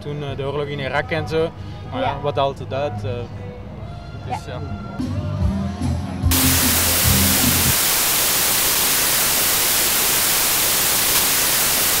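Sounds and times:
bass-heavy music: 0:05.0 - 0:07.8
television static hiss: 0:06.3 - 0:12.0.

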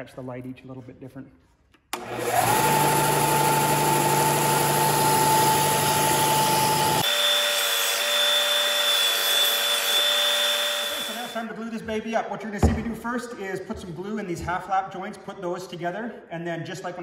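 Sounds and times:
belt sander running: 0:02.0 - 0:11.4.

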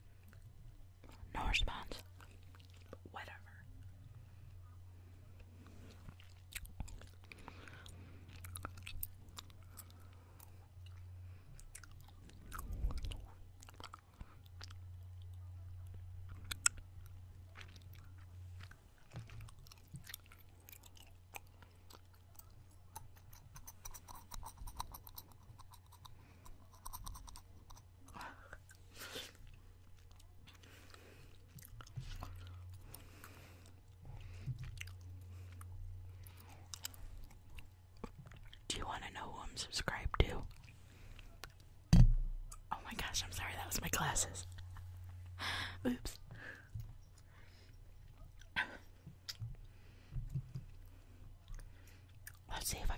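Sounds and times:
steady low hum: 0:00.0 - 0:52.9
gum chewing mouth clicks: 0:05.9 - 0:38.7, 0:48.1 - 0:52.5.

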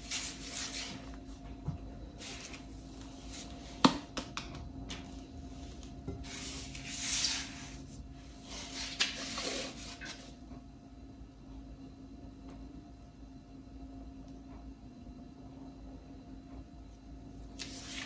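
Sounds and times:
spatula scraping: 0:00.0 - 0:01.1, 0:05.5 - 0:10.4
faint steady hum: 0:00.0 - 0:18.0.

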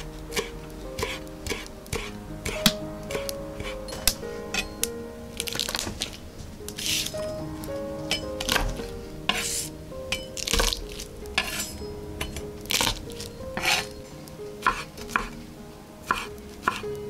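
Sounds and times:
faint background music: 0:00.0 - 0:17.0
knife rasping strokes: 0:00.3 - 0:04.0, 0:11.4 - 0:11.8
knife chopping on wooden board: 0:14.6 - 0:15.4.

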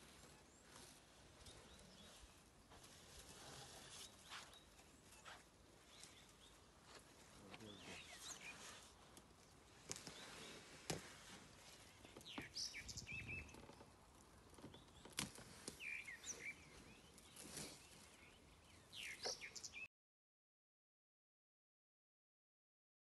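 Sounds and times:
bird chirps: 0:07.6 - 0:08.8, 0:11.8 - 0:13.7, 0:15.8 - 0:19.9.

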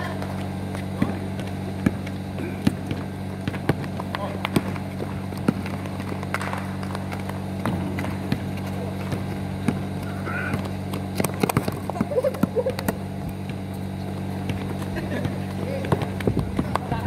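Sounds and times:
basketball bouncing: 0:00.0 - 0:17.0
feet on concrete court: 0:00.0 - 0:17.0
steady low hum: 0:00.0 - 0:17.0.

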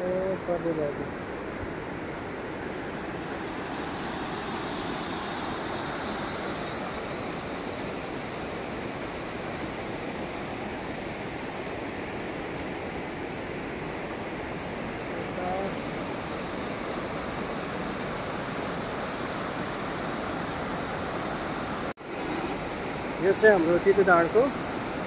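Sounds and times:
river rushing: 0:00.0 - 0:25.0.

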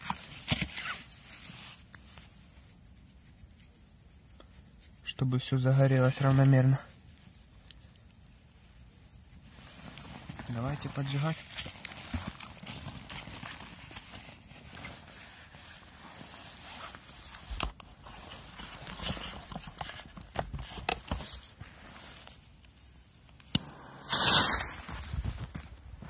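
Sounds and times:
sharp crack: 0:23.5 - 0:25.4
loud rushing burst: 0:23.6 - 0:25.1
footsteps: 0:24.0 - 0:26.0.

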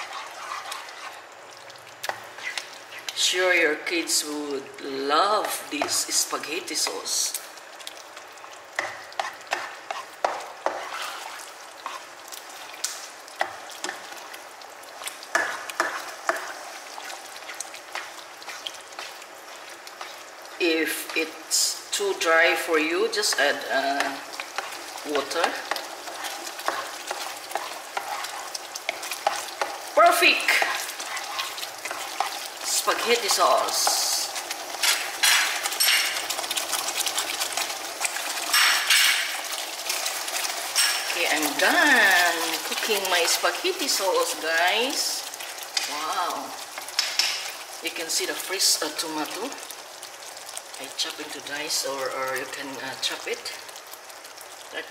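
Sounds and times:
spatula scraping and tapping pan: 0:00.0 - 0:01.2, 0:02.0 - 0:03.2, 0:05.4 - 0:06.1, 0:08.7 - 0:14.3, 0:15.0 - 0:20.2, 0:23.2 - 0:29.9, 0:30.5 - 0:34.1, 0:34.7 - 0:41.6, 0:46.8 - 0:47.6
sauce sizzling in a pan: 0:00.0 - 0:54.9.

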